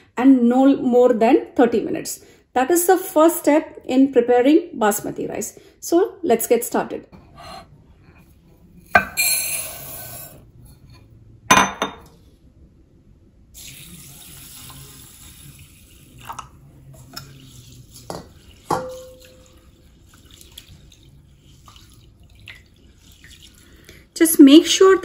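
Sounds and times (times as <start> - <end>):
glass clinks: 11.5 - 12.0
water pouring onto rice: 13.6 - 23.9.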